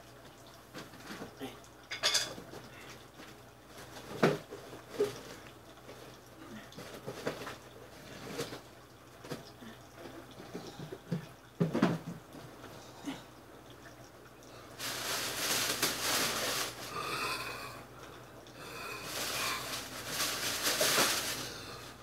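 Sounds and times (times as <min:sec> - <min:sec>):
dishes and utensils clinking: 0:01.9 - 0:02.5
rustling: 0:14.8 - 0:17.0, 0:18.8 - 0:22.0.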